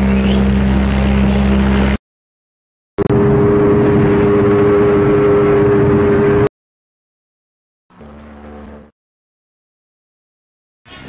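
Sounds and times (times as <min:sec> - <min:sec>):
deep ship horn: 0:03.0 - 0:06.5, 0:07.9 - 0:08.9
higher-pitched ship horn: 0:03.0 - 0:06.5, 0:07.9 - 0:08.9.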